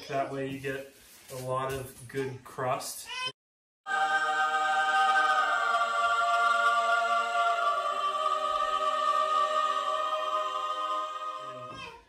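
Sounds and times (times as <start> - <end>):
choir singing held chord: 3.9 - 12.0.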